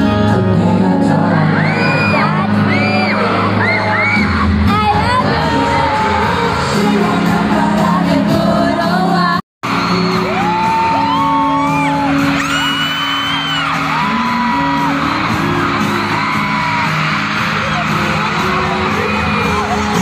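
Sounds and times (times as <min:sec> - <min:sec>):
live concert music and singing: 0:00.0 - 0:20.0
fans screaming: 0:01.4 - 0:04.6, 0:09.6 - 0:20.0.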